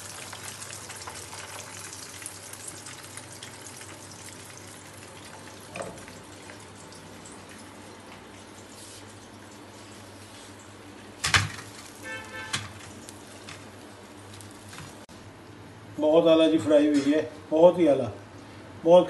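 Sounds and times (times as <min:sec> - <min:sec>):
hot oil sizzling in a frying pan: 0:00.0 - 0:15.1.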